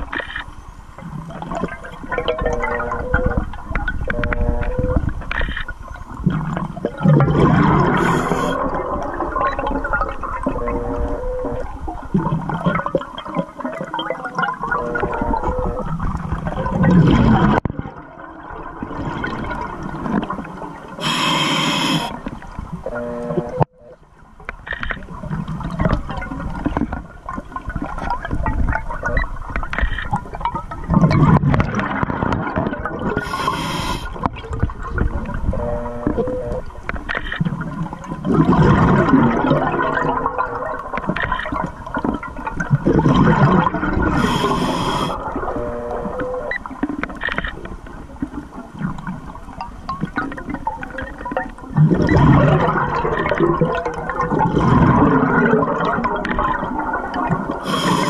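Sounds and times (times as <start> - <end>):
bubbling regulator exhalations: 6.2 - 13.0, 14.4 - 18.0, 21.0 - 22.3, 30.8 - 36.7, 38.2 - 42.0, 42.6 - 46.6, 51.8 - 58.0
hissing regulator inhalations: 7.9 - 8.6, 21.0 - 22.2, 33.2 - 34.2, 44.1 - 45.2, 57.6 - 58.0.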